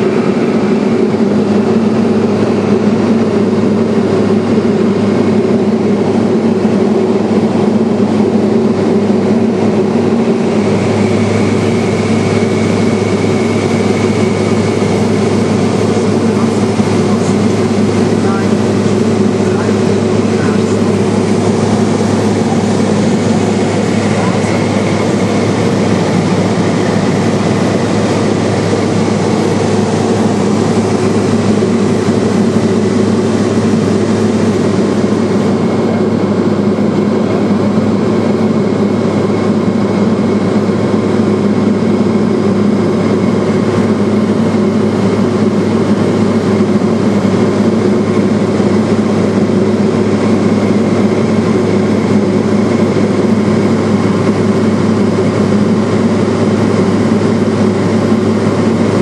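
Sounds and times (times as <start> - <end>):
propeller plane engine droning: 0.0 - 59.0
faint high whine: 7.9 - 37.3.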